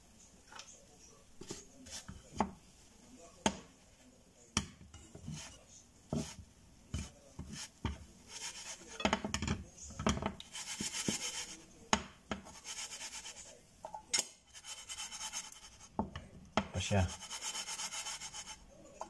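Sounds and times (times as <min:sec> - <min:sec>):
metal spatula scraping a pan: 0:01.4 - 0:02.4, 0:04.9 - 0:09.5, 0:10.1 - 0:11.7, 0:12.4 - 0:13.6, 0:14.5 - 0:16.0, 0:16.9 - 0:18.7.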